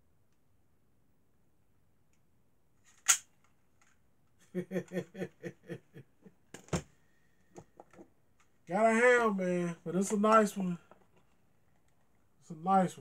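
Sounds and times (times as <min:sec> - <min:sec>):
airsoft pistol snap: 0:03.0 - 0:03.3
person laughing: 0:04.4 - 0:06.4.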